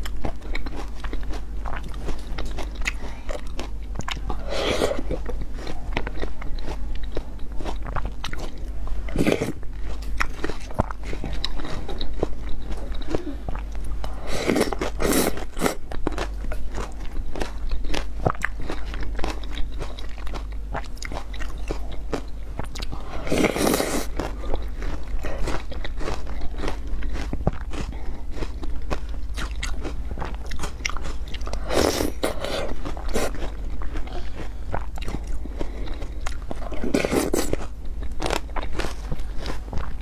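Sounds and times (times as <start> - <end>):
chewing and mouth clicks: 0.0 - 40.0.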